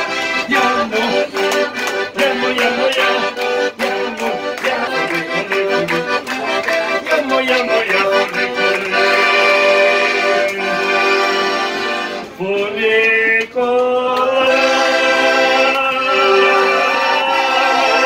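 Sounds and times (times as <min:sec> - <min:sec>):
accordion playing chords: 0:00.0 - 0:18.0.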